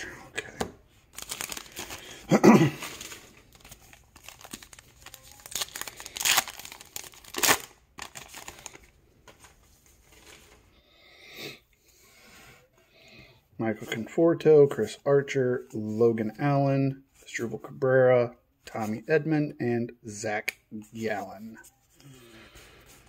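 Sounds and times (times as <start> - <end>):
card pack wrapper tearing and crinkling: 1.1 - 8.9.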